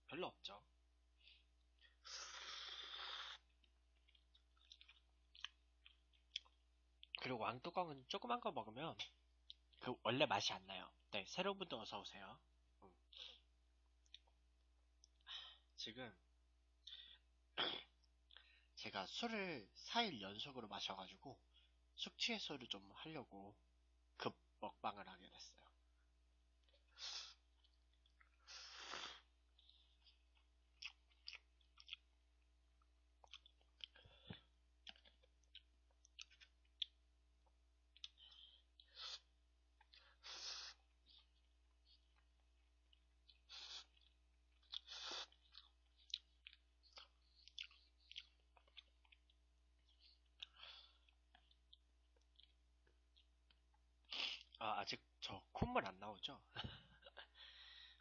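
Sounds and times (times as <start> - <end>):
chewing noodles: 1.2 - 7.2, 26.6 - 54.6
slurping noodles: 2.0 - 3.6, 28.4 - 29.3, 43.4 - 45.6.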